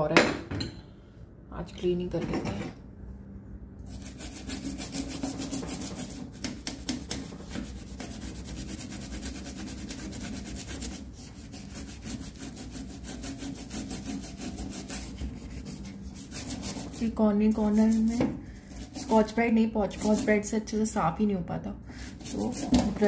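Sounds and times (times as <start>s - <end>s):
toothbrush scrubbing metal stove top: 3.9s - 20.5s, 22.0s - 23.0s.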